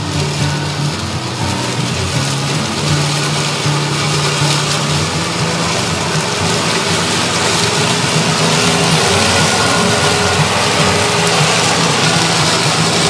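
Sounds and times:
mower blades cutting grass: 0.0 - 13.0
riding mower engine running: 0.0 - 13.0.

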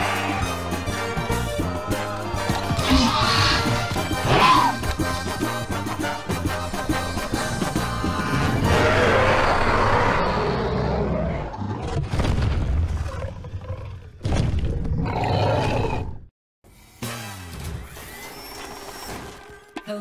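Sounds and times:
trailer music: 0.0 - 9.4
dinosaur roar: 2.7 - 4.8, 8.2 - 12.0, 13.0 - 16.3.

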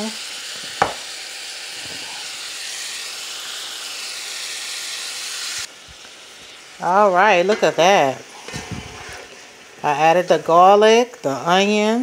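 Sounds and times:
vegetables sizzling in a pot: 0.0 - 12.0
sharp knock: 0.8 - 1.0.

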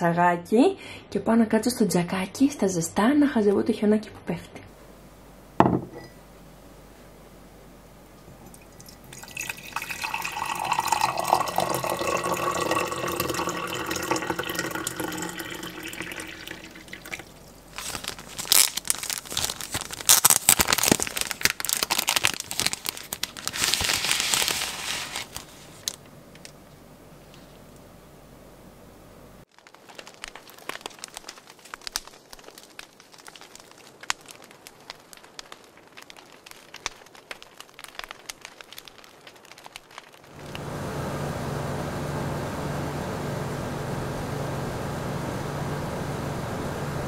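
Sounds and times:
mug knocked onto counter: 5.6 - 6.1
water pouring into mug: 8.5 - 17.3
paper wrapper crinkling and tearing: 9.2 - 26.6, 29.5 - 40.5.

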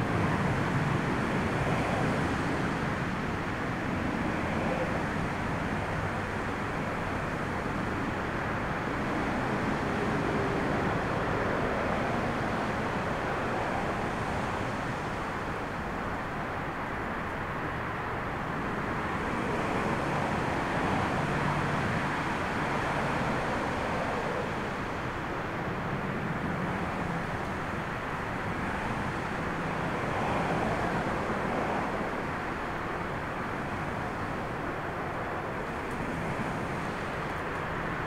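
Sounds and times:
storm wind: 0.0 - 38.0.

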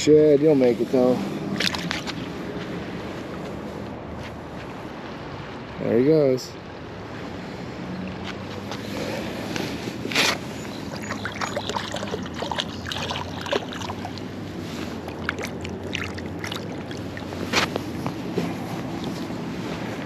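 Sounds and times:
river flowing: 0.6 - 4.2, 4.8 - 20.0
hand scraping on concrete: 8.3 - 11.2, 17.0 - 20.0.

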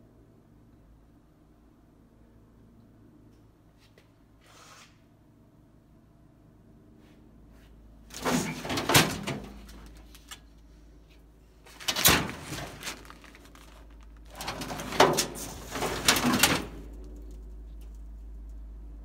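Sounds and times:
sheet metal scraping and rattling: 8.1 - 10.4, 11.7 - 17.4.

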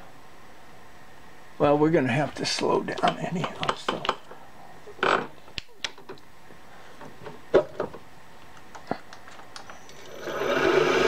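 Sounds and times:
light clicks and knocks: 2.9 - 4.4
milling machine motor humming: 9.9 - 11.0.

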